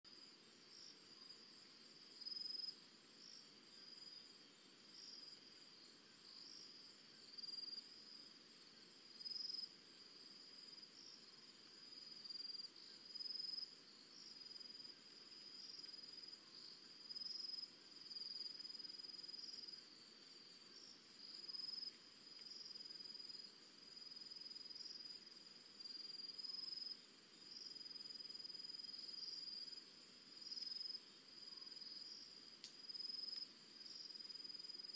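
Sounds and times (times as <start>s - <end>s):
crickets trilling: 0.1s - 34.9s.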